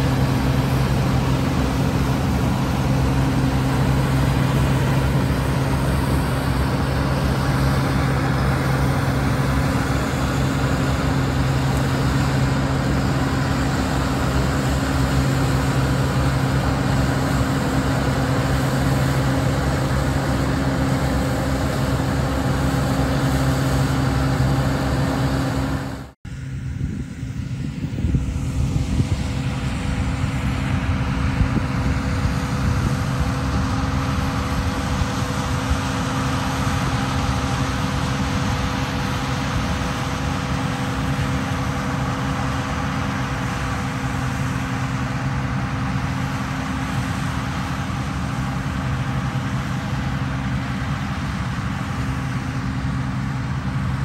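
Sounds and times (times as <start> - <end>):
combine harvester engine running: 0.0 - 54.0.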